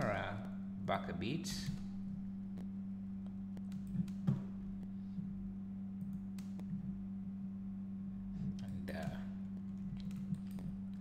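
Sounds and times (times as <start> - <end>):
low electrical hum: 0.0 - 11.0
computer mouse clicks: 2.6 - 4.5, 6.0 - 6.8, 8.6 - 11.0.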